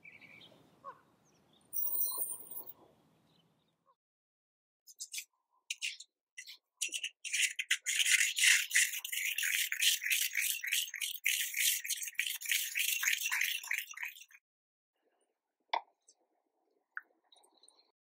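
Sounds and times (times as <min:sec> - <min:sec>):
pestle grinding seeds in mortar: 0:06.9 - 0:14.4.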